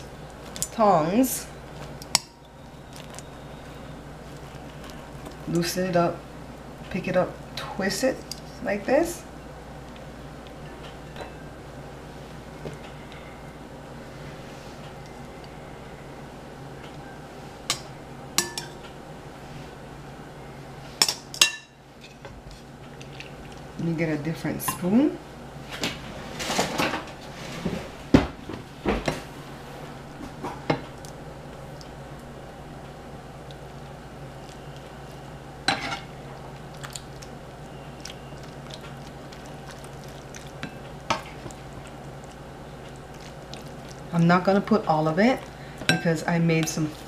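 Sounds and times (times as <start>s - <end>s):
metal tongs clinking on bowls: 17.7s - 18.8s, 45.8s - 46.8s.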